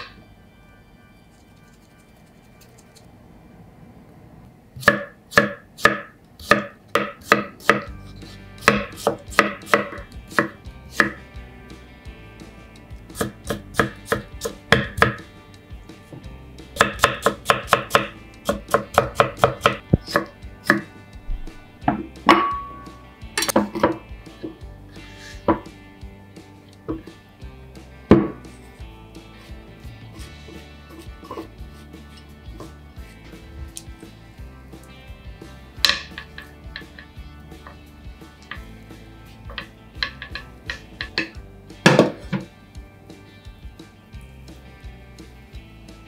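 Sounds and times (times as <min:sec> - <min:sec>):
knife striking cutting board: 0:04.8 - 0:07.9, 0:08.6 - 0:11.2, 0:13.1 - 0:15.3, 0:16.8 - 0:22.8, 0:23.4 - 0:24.6, 0:28.1 - 0:28.5, 0:35.8 - 0:37.1, 0:39.5 - 0:42.5.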